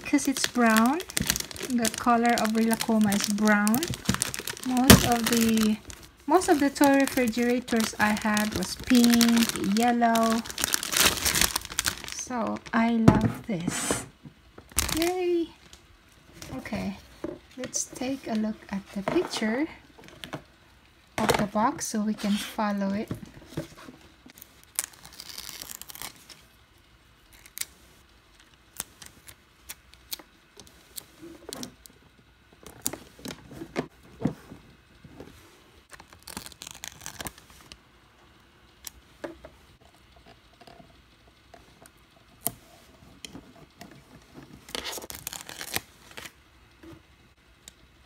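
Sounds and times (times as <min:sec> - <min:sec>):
paper stickers rustling and peeling: 0:00.0 - 0:12.8, 0:23.7 - 0:26.4, 0:35.8 - 0:37.8, 0:44.6 - 0:46.4.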